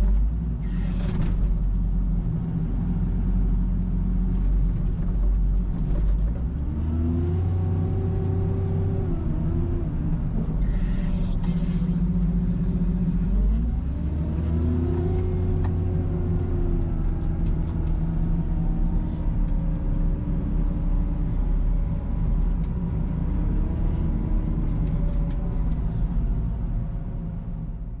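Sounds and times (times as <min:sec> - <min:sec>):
diesel engine revving under load: 0:06.6 - 0:27.6.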